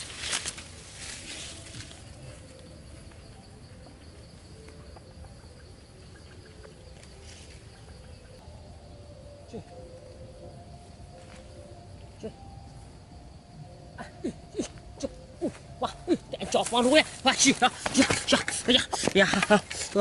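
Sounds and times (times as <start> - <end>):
footsteps swishing through grass: 0.0 - 2.0
insect drone: 0.0 - 20.0.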